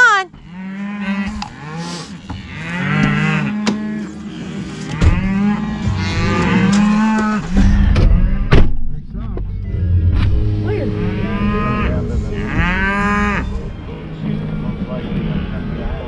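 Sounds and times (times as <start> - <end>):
cattle mooing: 0.3 - 8.5, 10.8 - 13.6.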